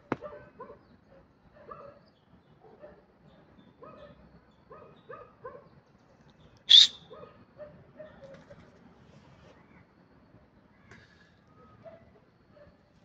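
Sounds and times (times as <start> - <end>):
low coo-like bird calls: 6.7 - 7.0
sharp high-pitched bird call: 6.7 - 7.1.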